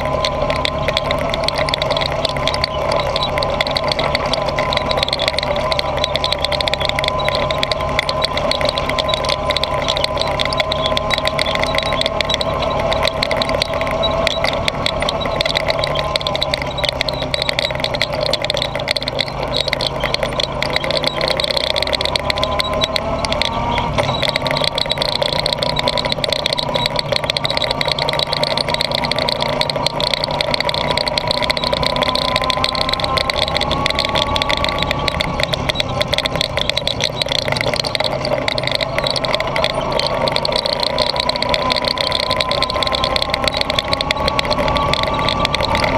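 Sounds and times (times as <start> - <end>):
atv engine running: 0.0 - 45.9.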